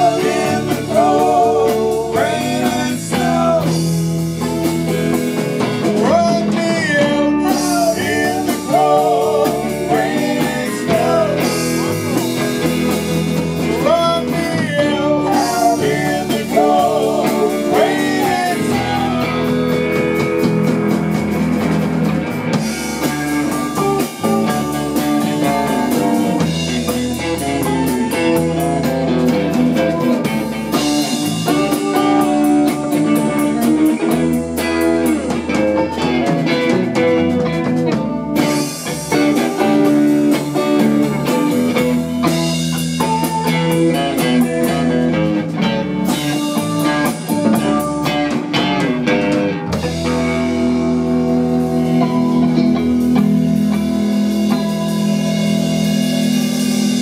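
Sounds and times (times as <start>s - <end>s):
drums and cymbals: 0.0s - 57.0s
electric guitars: 0.0s - 57.0s.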